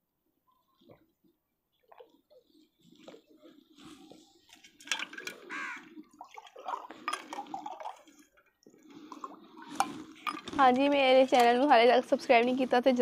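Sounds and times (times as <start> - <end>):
liquid pouring into a glass: 6.1 - 10.6.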